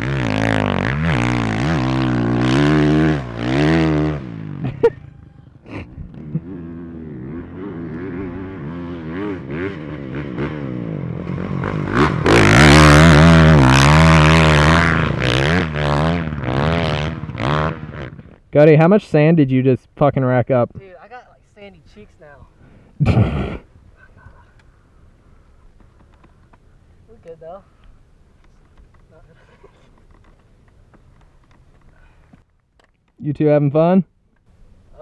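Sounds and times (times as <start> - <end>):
motocross bike engine revving: 0.0 - 18.4.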